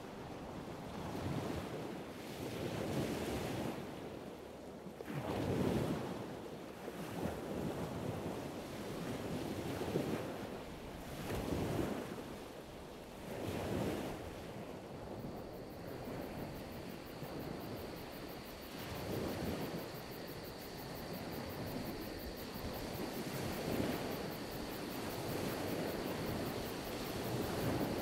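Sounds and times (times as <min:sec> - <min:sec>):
waves washing on shore: 0:00.4 - 0:28.0
faint high whine: 0:14.2 - 0:28.0.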